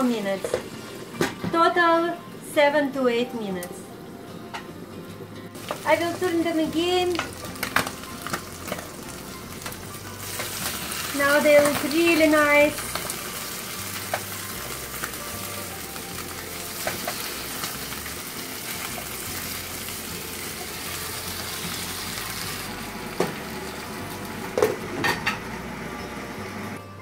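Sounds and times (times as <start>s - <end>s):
fish sizzling in a frying pan: 5.6s - 24.6s.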